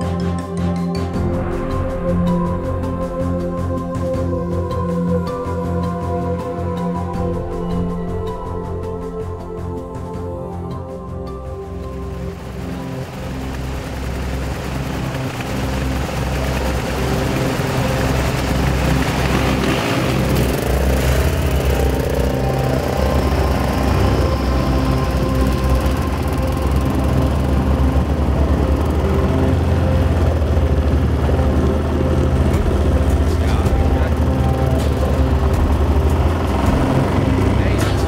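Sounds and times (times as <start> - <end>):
road and wind noise: 1.1 - 38.0
motorcycle engines running: 11.4 - 38.0.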